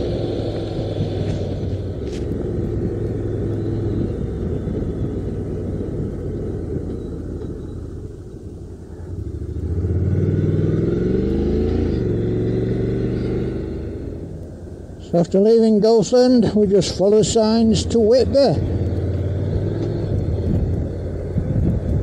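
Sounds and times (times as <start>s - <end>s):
motorcycle engine revving: 0.0s - 8.0s, 9.0s - 14.5s, 17.0s - 22.0s
wind rush: 0.0s - 11.2s, 19.3s - 22.0s.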